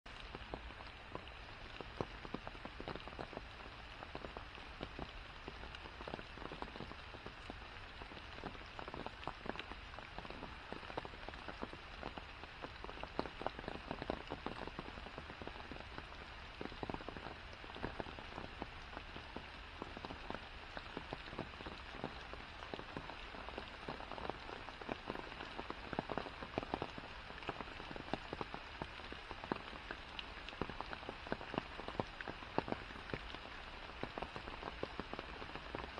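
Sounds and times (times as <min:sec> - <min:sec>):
rain on foliage: 0:00.1 - 0:35.9.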